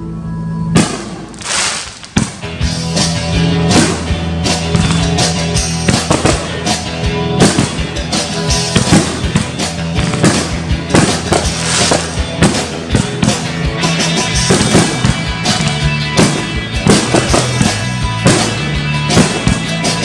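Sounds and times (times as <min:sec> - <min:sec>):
music: 0:00.0 - 0:20.0
fireworks bursting: 0:00.8 - 0:02.6, 0:03.7 - 0:06.8, 0:07.4 - 0:07.9, 0:08.6 - 0:13.4, 0:14.4 - 0:20.0.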